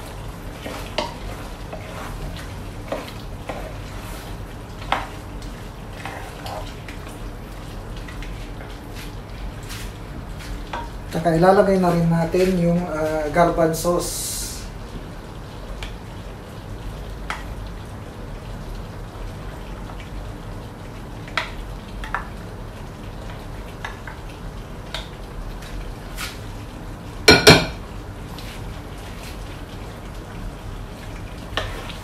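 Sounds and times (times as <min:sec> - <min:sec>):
spoon knocking against pot: 0:27.3 - 0:27.8.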